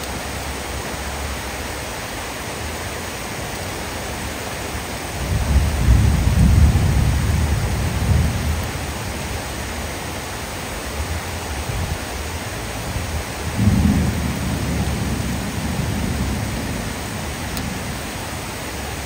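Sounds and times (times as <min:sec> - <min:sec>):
heavy rain falling: 0:00.0 - 0:19.0
thunder rumbling: 0:05.2 - 0:09.2, 0:12.9 - 0:19.0.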